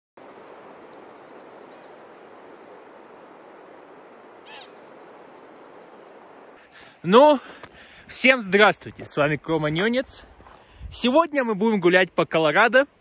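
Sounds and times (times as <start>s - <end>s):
faint bird chirp: 0.2s - 2.8s, 3.4s - 6.8s
steady hiss of forest air: 0.2s - 12.0s
sharp bird call: 4.4s - 4.9s.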